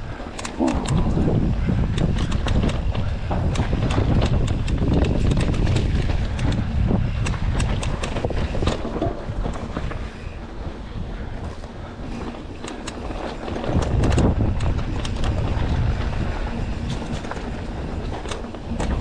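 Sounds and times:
bike clicks and rattles: 0.0 - 19.0
bike tyres rumbling on dirt: 0.0 - 19.0
wind buffeting microphone: 0.0 - 19.0.

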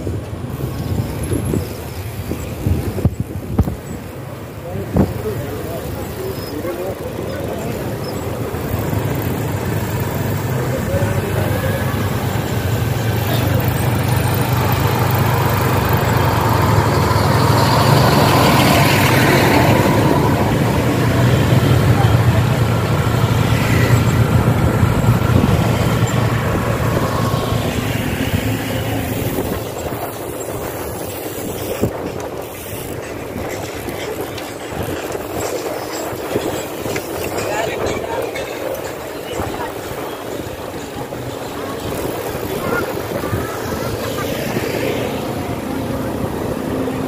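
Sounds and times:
passing traffic: 0.0 - 47.0
road and wind noise: 0.0 - 47.0
vehicle engine droning: 4.7 - 31.0.

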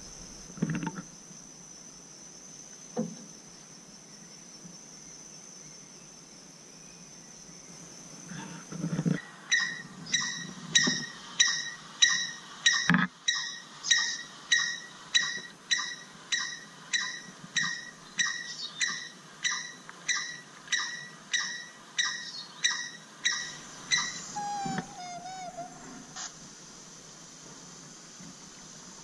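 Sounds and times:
bird call from speaker: 9.5 - 26.3.

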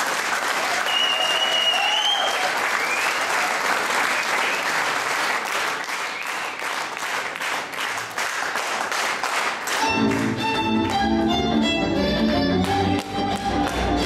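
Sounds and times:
audience applauding: 0.0 - 11.1, 12.6 - 14.0
band music with fiddle: 9.8 - 14.0.

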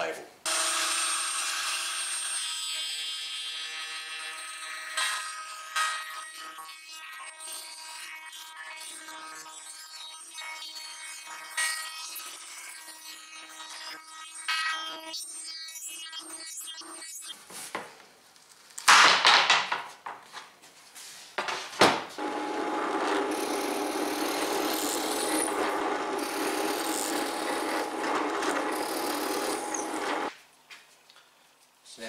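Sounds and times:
drill press boring into wood: 22.2 - 30.3.

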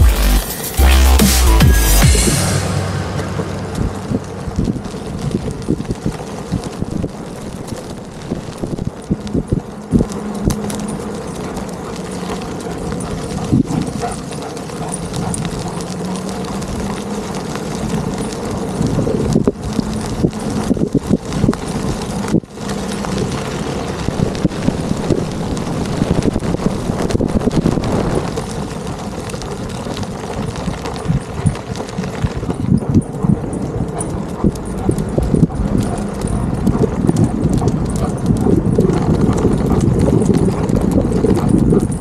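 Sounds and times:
skateboard wheels rolling on paving: 4.0 - 42.0.

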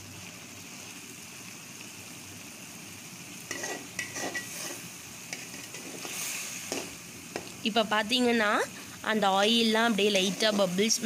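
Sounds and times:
vegetables sizzling in a pan: 0.0 - 11.0
spoon scraping pan bottom: 3.5 - 7.5, 9.9 - 10.9.

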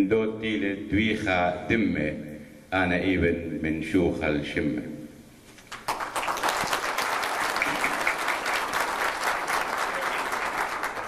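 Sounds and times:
audience applauding: 5.7 - 11.0.

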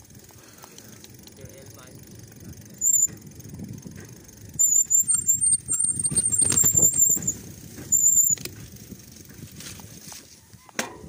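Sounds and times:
bike rattling over bumps: 0.0 - 11.0
tyres rumbling on dirt trail: 0.0 - 11.0
bike brakes squealing: 2.6 - 3.3, 4.4 - 8.6.

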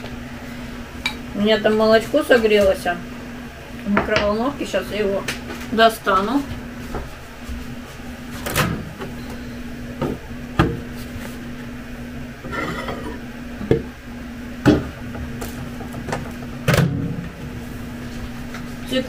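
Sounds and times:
steady low hum: 0.0 - 19.0
microwave door knocks and clatters: 14.6 - 14.9, 15.8 - 17.2.

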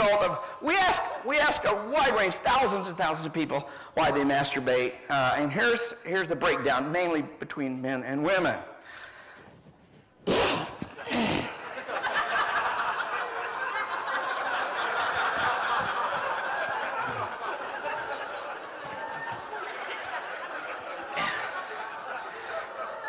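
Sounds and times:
audience laughing: 10.8 - 23.0.

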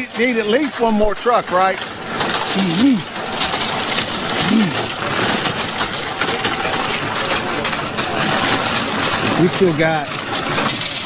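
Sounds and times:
concrete pump rushing: 0.0 - 11.0.

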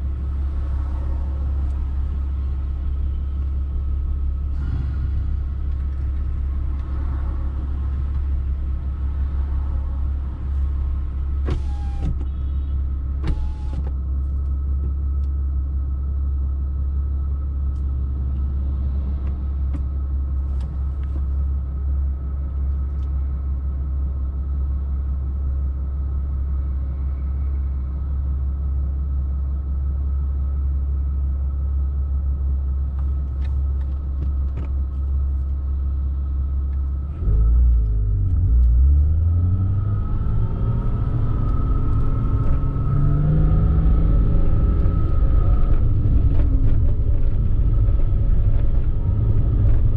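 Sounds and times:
car engine idling: 0.0 - 18.5, 19.4 - 37.1.

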